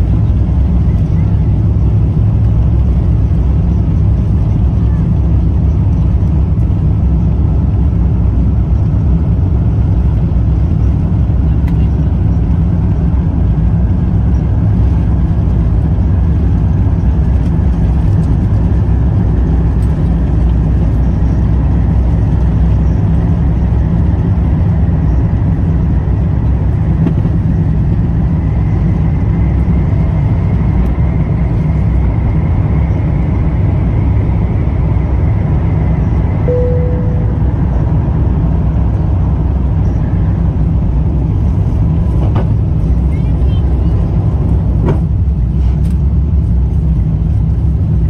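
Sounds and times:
jet engines rumbling in cabin: 0.0 - 48.0
faint rising whine: 29.5 - 41.5.

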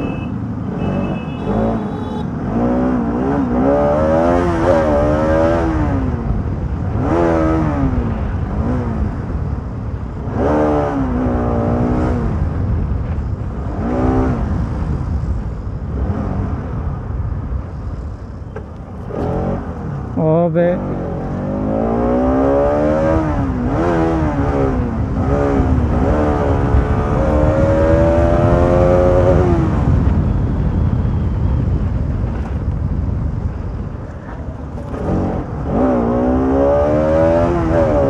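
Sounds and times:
motorcycle engine revving: 0.0 - 6.3, 20.6 - 30.1, 34.6 - 38.0
road and wind noise: 0.0 - 38.0.

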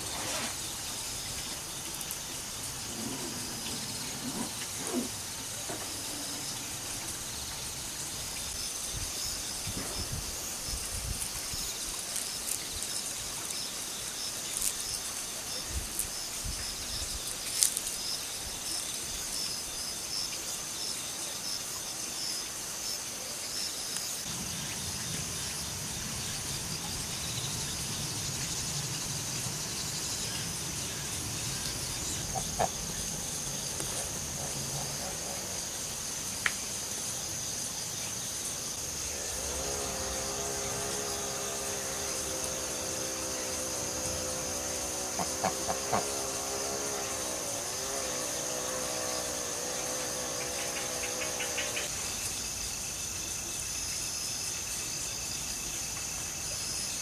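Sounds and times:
insect chirring: 0.0 - 57.0
pitched drone: 38.8 - 51.9.

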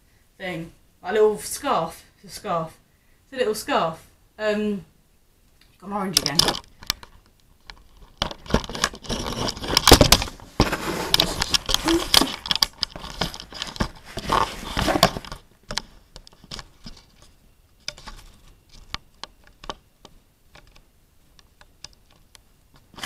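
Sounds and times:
handling rustling and crinkling: 6.2 - 19.8.

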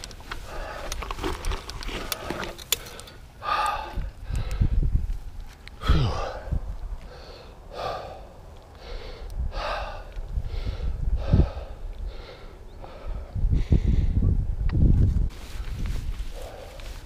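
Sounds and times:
person breathing hard: 2.8 - 5.0, 5.8 - 14.2.

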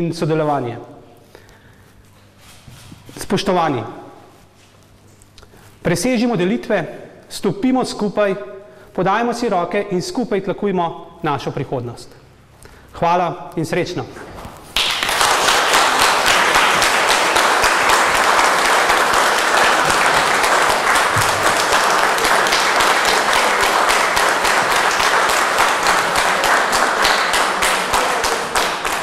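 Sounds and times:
audience applauding: 14.8 - 29.0.

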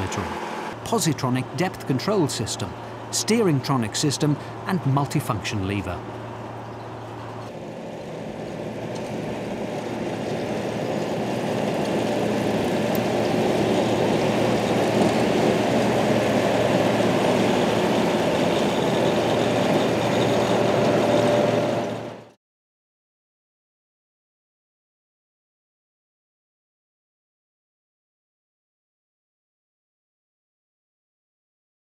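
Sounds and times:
harvester engine and machinery: 0.0 - 22.3.

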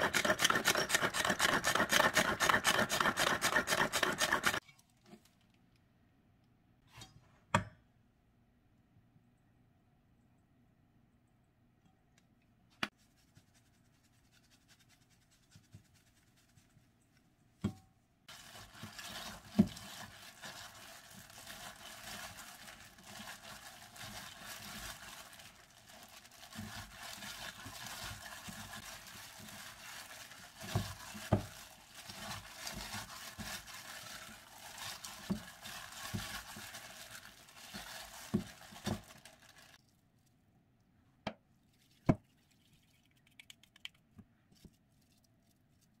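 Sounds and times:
plastic bag crinkling: 18.3 - 40.0.

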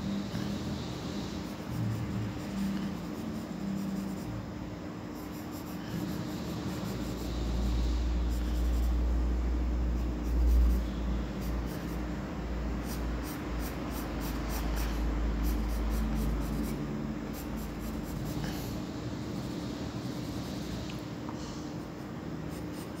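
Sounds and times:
faint steady hum: 0.0 - 23.0
pencil scratching on paper: 1.4 - 4.3, 5.1 - 9.0, 12.8 - 20.7, 21.8 - 23.0.

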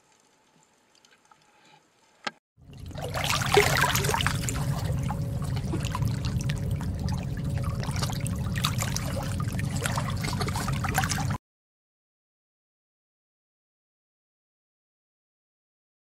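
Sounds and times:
bubbling: 2.6 - 11.4
underwater sea rumble: 2.6 - 11.4
underwater crackles: 2.7 - 11.4.

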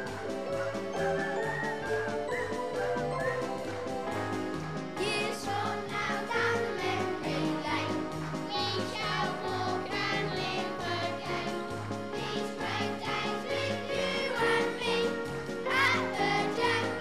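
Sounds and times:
children singing: 5.0 - 17.0.

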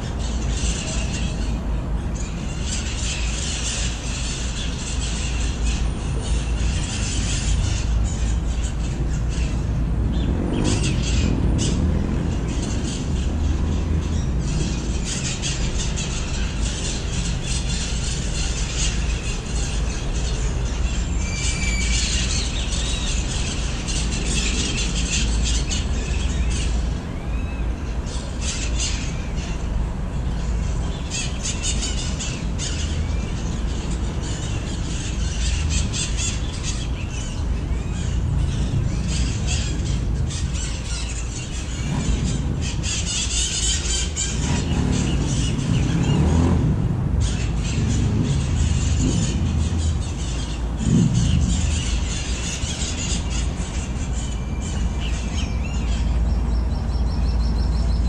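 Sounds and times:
parrots screeching: 30.4 - 46.5, 47.2 - 56.0.

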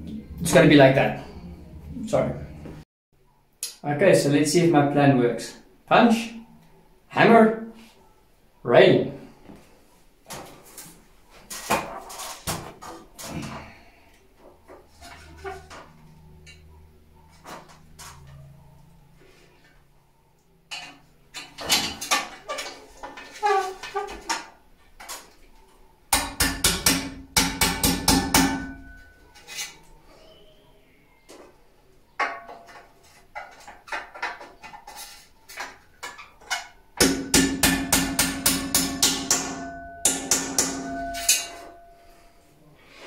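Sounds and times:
hammer striking steel punch: 26.1 - 29.1, 37.0 - 41.8
metallic ringing: 27.8 - 29.4, 37.3 - 42.5.

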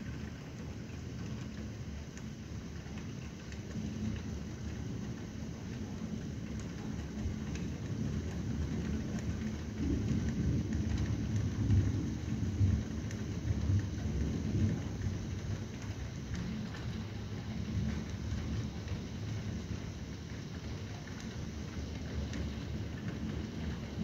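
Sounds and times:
steady rain: 0.0 - 24.0
thunder rumbling: 3.7 - 24.0.

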